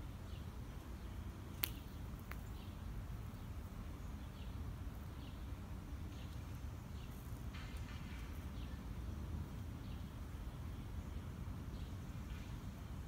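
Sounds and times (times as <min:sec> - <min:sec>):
bird chirping: 0:00.0 - 0:09.0.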